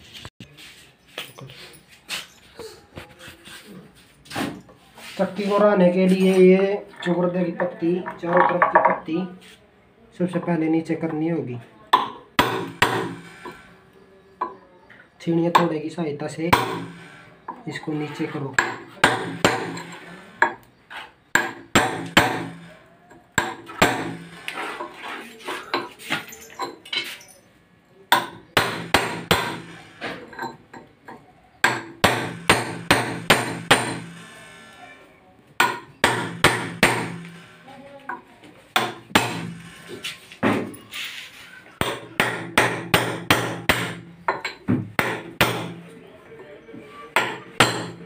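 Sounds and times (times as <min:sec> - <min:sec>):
hammer striking steel chisel: 0:12.0 - 0:13.6, 0:16.5 - 0:17.2, 0:18.6 - 0:20.6, 0:21.3 - 0:22.7, 0:23.3 - 0:24.6, 0:28.1 - 0:30.6, 0:31.6 - 0:34.7, 0:35.6 - 0:37.5, 0:38.8 - 0:40.7, 0:41.8 - 0:45.9, 0:47.2 - 0:48.0.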